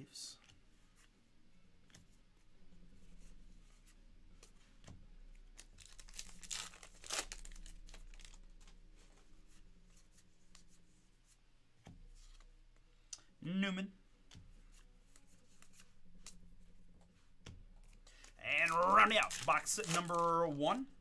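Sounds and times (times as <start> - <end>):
cards rustling: 5.3 - 10.7, 17.8 - 20.9
wrapper tearing and crinkling: 5.6 - 8.5, 18.5 - 20.6.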